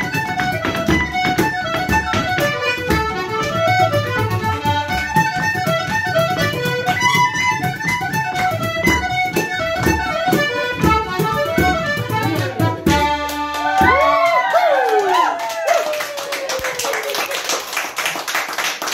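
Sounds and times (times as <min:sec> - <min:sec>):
button accordion: 0:00.0 - 0:14.0
fiddle: 0:00.0 - 0:14.2
steady percussive beat: 0:00.0 - 0:14.2.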